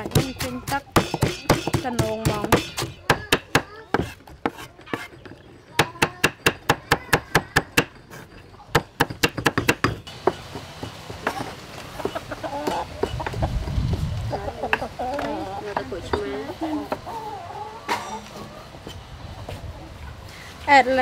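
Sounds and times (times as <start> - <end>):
cleaver chopping on wooden block: 0.0 - 5.1, 5.8 - 8.0, 8.7 - 13.4
chickens clucking: 10.1 - 20.3.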